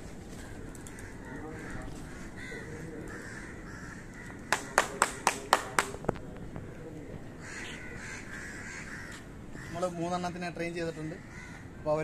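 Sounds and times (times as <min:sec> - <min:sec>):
sharp hand claps: 0:04.5 - 0:06.0.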